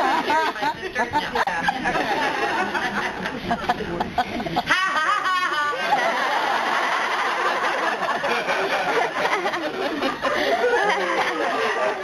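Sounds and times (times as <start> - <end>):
audience laughing: 0.0 - 12.0
loud high repeated laugh: 4.5 - 12.0.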